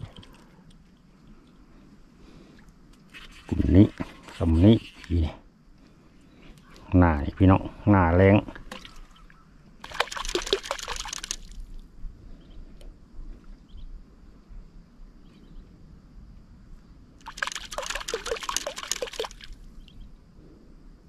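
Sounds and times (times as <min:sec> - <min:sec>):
water splashing: 0:08.5 - 0:11.7, 0:17.2 - 0:19.7.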